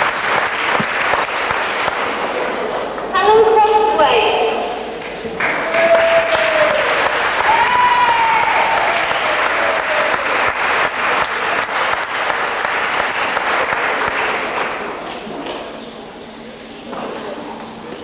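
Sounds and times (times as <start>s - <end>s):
audience applauding: 0.0s - 3.0s, 5.0s - 15.8s
high voice calling out: 3.1s - 4.8s.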